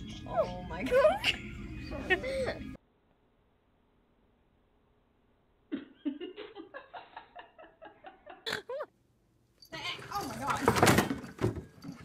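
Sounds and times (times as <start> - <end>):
woman laughing: 0.8 - 2.8, 5.7 - 8.9.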